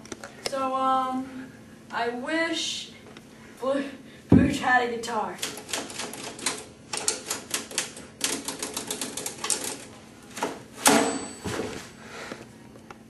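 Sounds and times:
typewriter keys striking: 5.4 - 9.9.

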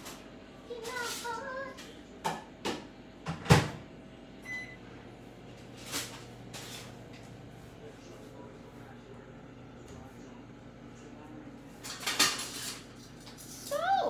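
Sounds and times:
kitchen items knocking and bumping: 2.2 - 3.8, 11.8 - 13.4.

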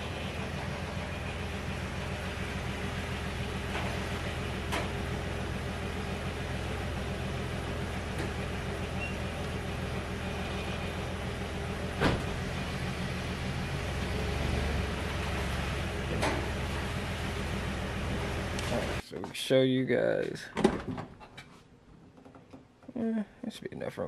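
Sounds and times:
pickup engine idling: 0.0 - 19.0.

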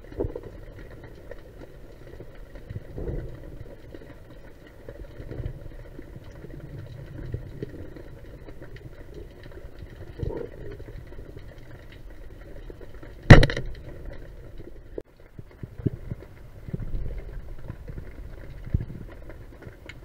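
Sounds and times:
faint clicks: 0.0 - 20.0
low underwater rumble: 0.0 - 20.0
speargun firing crack: 13.3 - 13.7.

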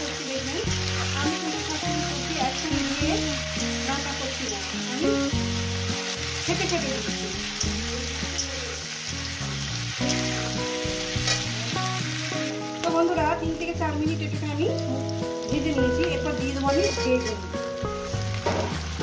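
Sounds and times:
background music: 0.0 - 19.0
vegetables sizzling in oil: 0.0 - 19.0
spatula scraping a pan: 11.1 - 11.6, 16.7 - 17.5.

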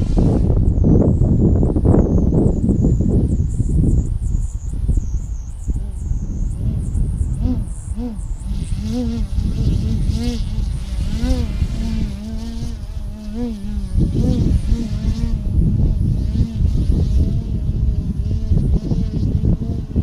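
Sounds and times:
wind rumble on microphone: 0.0 - 20.0
model plane motor buzzing: 5.5 - 20.0.

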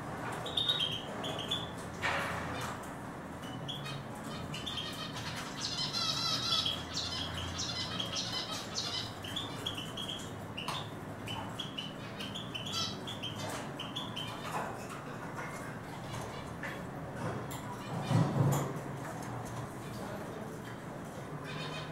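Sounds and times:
small bird twittering song: 3.4 - 14.5.

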